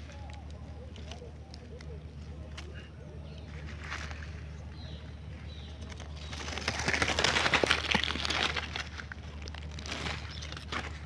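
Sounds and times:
wings fluttering in grass: 5.8 - 11.0.

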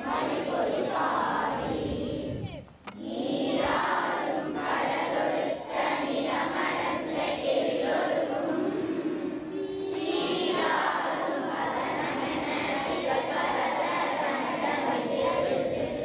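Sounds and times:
children singing in unison: 0.0 - 16.0.

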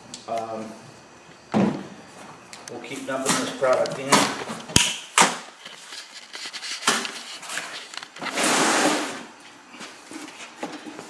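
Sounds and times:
cardboard scrape and rustle: 5.7 - 9.2.

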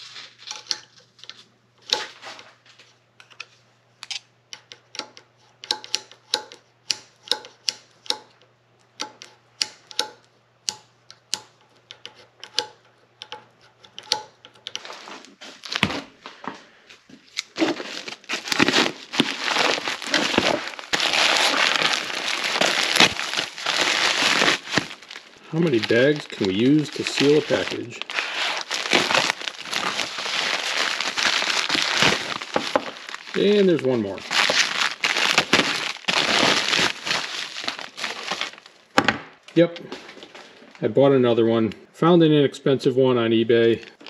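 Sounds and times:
plastic mailer bag crinkling: 14.8 - 16.5, 17.2 - 39.0.

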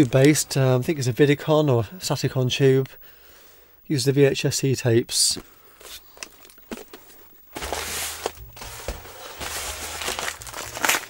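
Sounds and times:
paper rustling and crinkling: 5.8 - 11.0.

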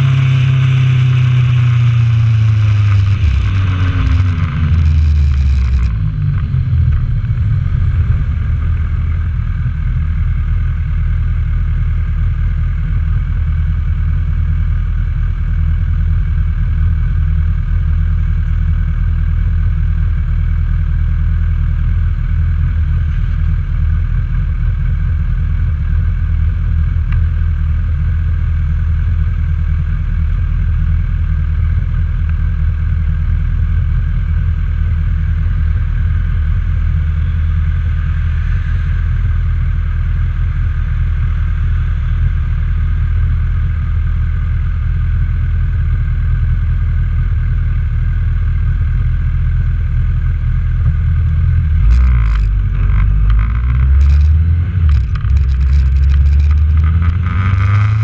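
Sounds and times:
motorcycle engine winding down: 0.0 - 7.4, 51.2 - 58.0
motorcycle engine idling: 0.0 - 58.0.

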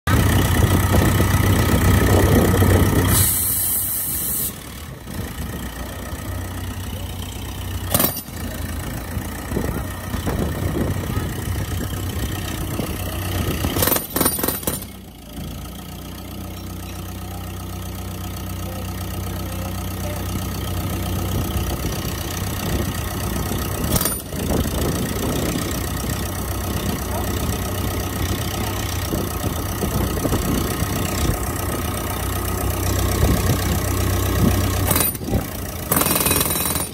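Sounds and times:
jackhammer bursts: 0.2 - 4.9, 5.9 - 11.5, 12.3 - 15.4, 22.9 - 29.1, 33.6 - 36.9
air hiss: 3.1 - 4.6.

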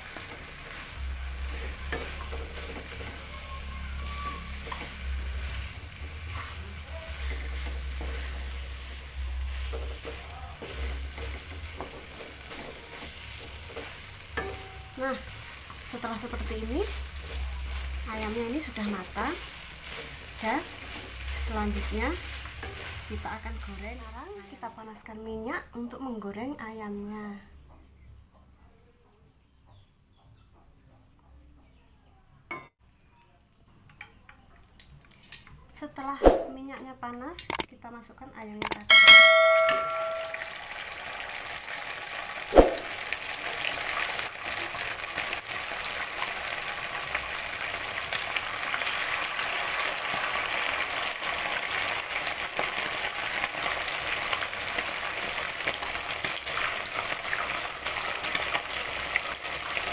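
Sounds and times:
wooden spatula scraping wok: 0.0 - 24.7
light sizzle: 0.0 - 25.6, 32.8 - 36.1, 38.8 - 59.9
sharp clink: 38.6 - 40.5
oil trickling into a wok: 40.2 - 59.9.

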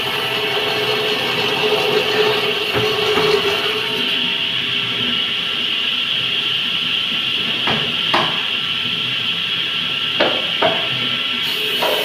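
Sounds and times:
table saw blade whining: 0.0 - 5.8, 11.4 - 12.0.

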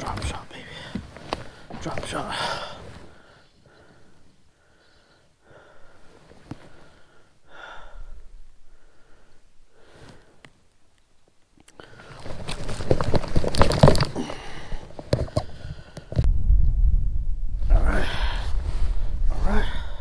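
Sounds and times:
loud clattering and rustling: 11.9 - 16.3
low rumble: 16.2 - 20.0.

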